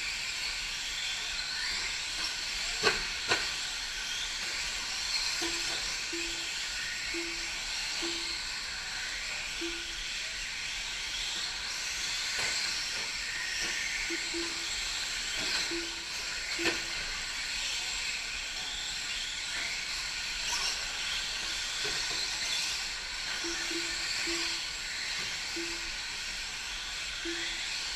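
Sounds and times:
rc truck motors whining: 0.0s - 27.9s
short beeps: 5.4s - 8.5s, 9.6s - 10.1s, 14.1s - 14.7s, 15.5s - 16.9s, 23.4s - 24.7s, 25.5s - 26.0s, 27.2s - 27.7s.

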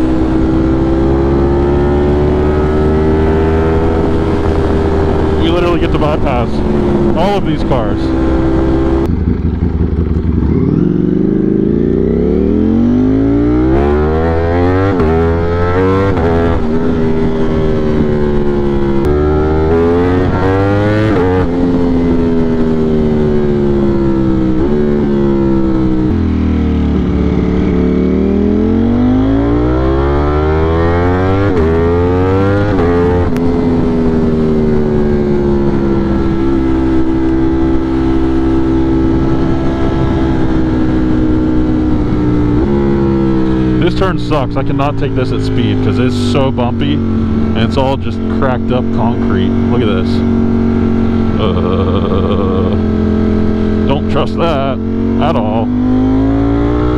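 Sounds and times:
wind noise: 0.0s - 11.8s, 12.5s - 44.2s
motorcycle engine accelerating: 0.0s - 56.9s.

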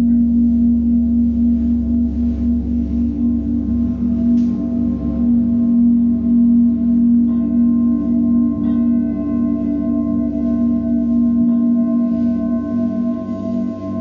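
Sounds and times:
didgeridoo drone: 0.0s - 14.0s
metal singing bowls ringing: 0.0s - 14.0s.

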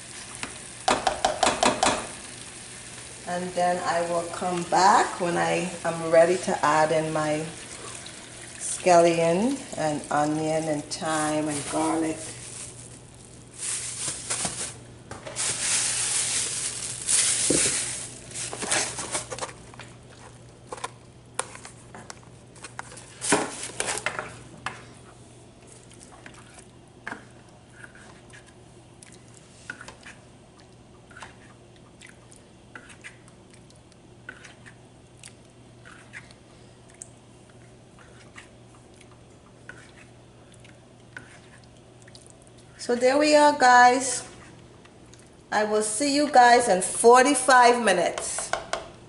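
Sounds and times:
plastic bag crinkling: 10.2s - 19.7s
spoon stirring in pan: 32.7s - 34.9s, 37.5s - 41.8s.

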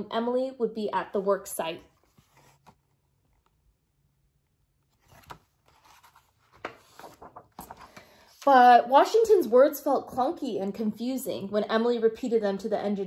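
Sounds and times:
pages turning: 1.9s - 3.6s, 4.8s - 8.5s.

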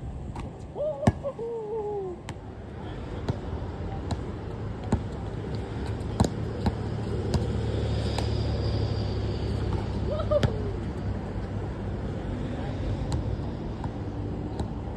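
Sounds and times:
steady low rumble: 0.0s - 14.9s
basketball bouncing on concrete: 3.3s - 7.6s.

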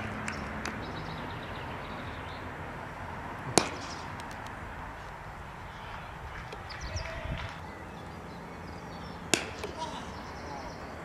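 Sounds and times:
outdoor background hiss: 0.0s - 11.0s
cricket bat striking ball: 3.4s - 4.4s, 9.3s - 9.9s.

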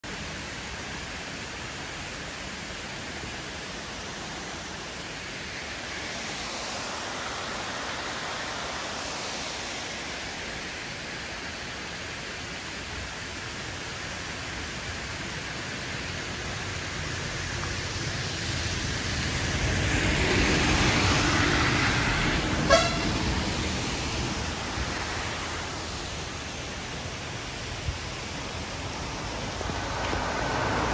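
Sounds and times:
rain hissing: 0.0s - 30.9s
wet road noise: 0.0s - 30.9s
vehicle passing: 18.3s - 26.4s, 28.6s - 30.9s
vehicle horn toot: 22.6s - 23.3s.

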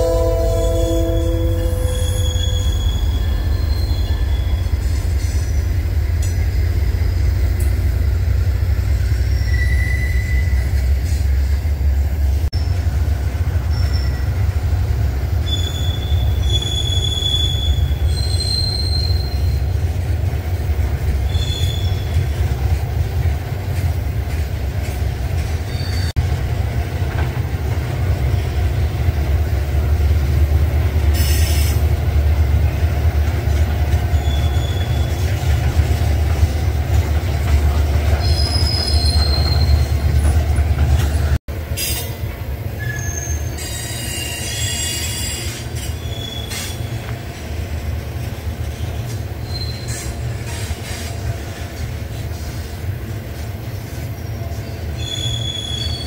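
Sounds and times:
harsh metallic screech: 0.0s - 5.5s
high-pitched wheel squeals: 0.0s - 5.6s, 9.2s - 10.8s, 13.6s - 14.4s, 15.4s - 19.7s, 21.3s - 22.2s, 34.1s - 35.3s, 38.2s - 40.4s, 42.8s - 47.0s, 49.4s - 50.2s, 54.6s - 56.0s
rumble of train wheels: 0.0s - 56.0s.

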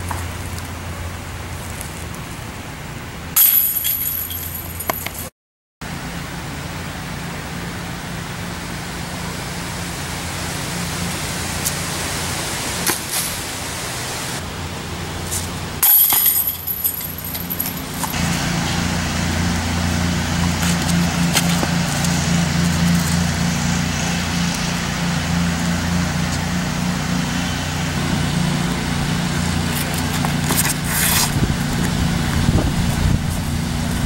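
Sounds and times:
disc jangling basket chains: 3.4s - 5.3s, 15.8s - 18.2s
low engine hum: 5.8s - 34.0s.

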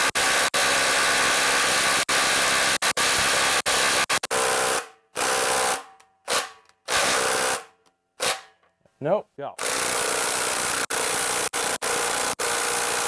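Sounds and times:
impact driver hammering: 3.0s - 8.6s, 9.6s - 13.0s.

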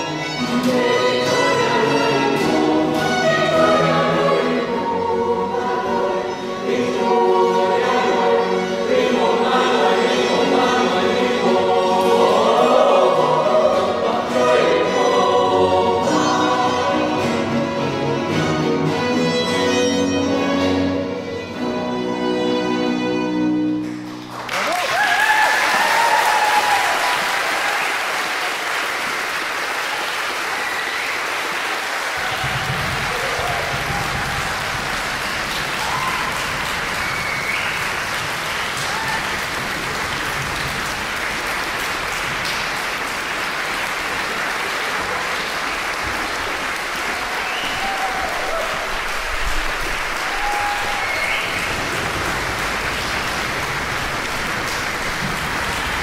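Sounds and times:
audience applauding: 23.8s - 56.0s.

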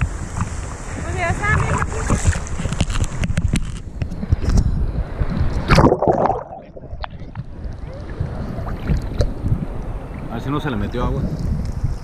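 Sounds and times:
sea water sloshing and splashing: 0.0s - 4.4s, 5.3s - 10.3s.

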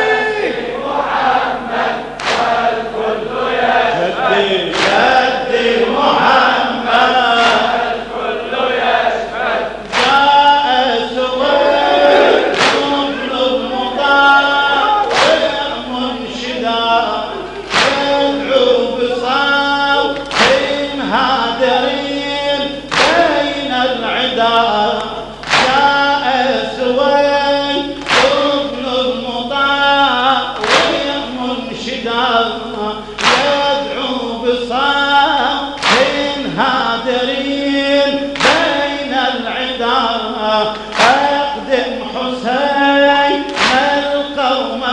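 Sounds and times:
men chanting a lament: 0.0s - 44.9s
crowd slapping chests in unison: 1.2s - 10.4s, 11.6s - 13.9s, 14.8s - 15.8s, 17.0s - 18.8s, 20.1s - 20.9s, 22.9s - 23.6s, 25.0s - 26.0s, 27.9s - 28.7s, 30.6s - 31.2s, 33.2s - 33.7s, 35.8s - 36.6s, 38.4s - 39.0s, 40.6s - 41.5s, 43.4s - 44.2s
hands striking chests: 12.5s - 13.0s.

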